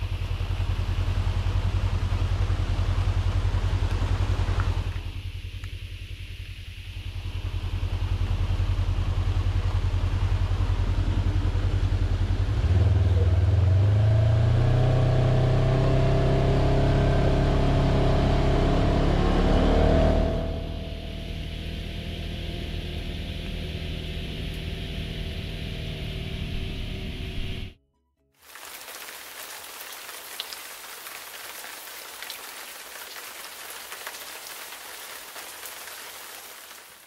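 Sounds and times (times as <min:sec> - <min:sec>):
vehicle engine rumbling: 0:00.0 - 0:27.8.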